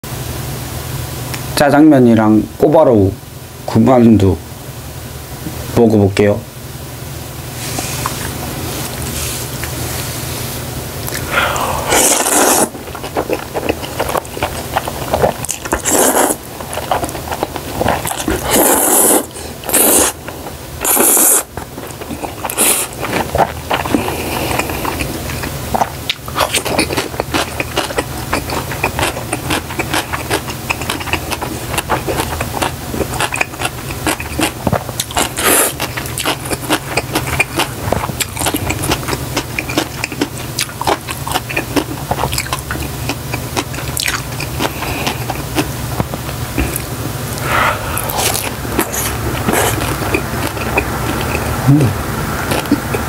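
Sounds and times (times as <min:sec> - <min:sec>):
wet chewing: 0:11.0 - 0:53.0
noodles being slurped: 0:11.1 - 0:45.7, 0:46.5 - 0:51.8.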